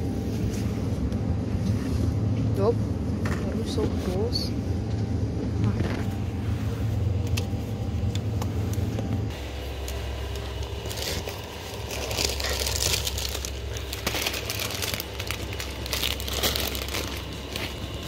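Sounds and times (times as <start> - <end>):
plastic crisp bag crinkling: 10.3 - 18.0.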